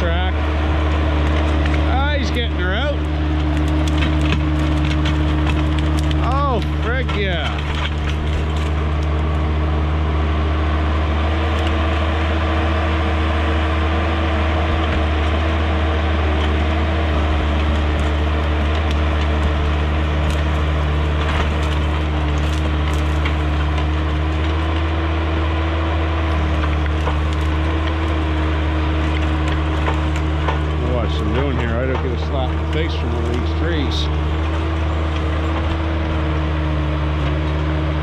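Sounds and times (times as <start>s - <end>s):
diesel engine running: 0.0s - 38.0s
sharp cracks: 1.2s - 9.4s, 16.3s - 36.6s.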